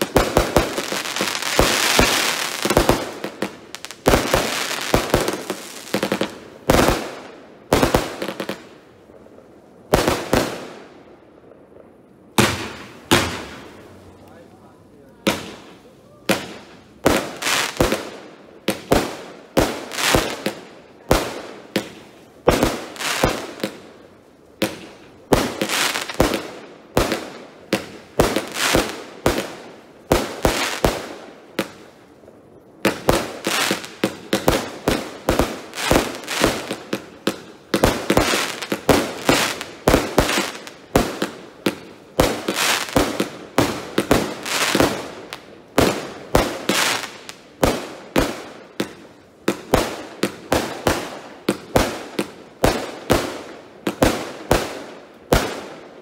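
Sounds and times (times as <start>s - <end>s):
firework launch and burst bangs: 12.3s - 13.9s.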